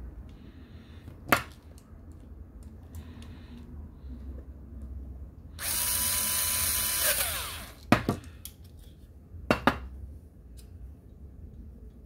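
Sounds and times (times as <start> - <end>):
cordless screwdriver whining: 5.6 - 7.8.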